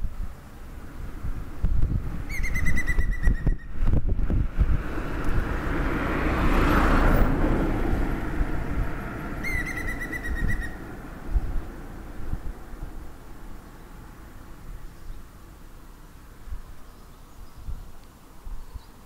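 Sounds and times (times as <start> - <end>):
woodpecker laughing call: 2.3 - 3.7, 9.4 - 10.8.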